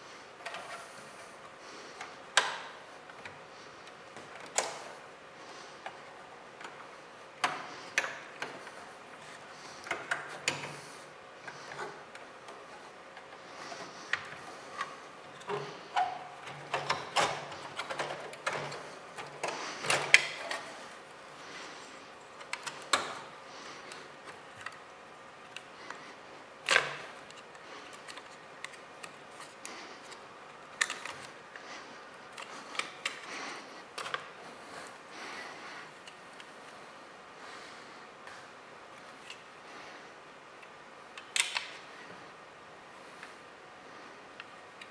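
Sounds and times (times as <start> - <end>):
plastic clicks and snaps: 40.6 - 41.8.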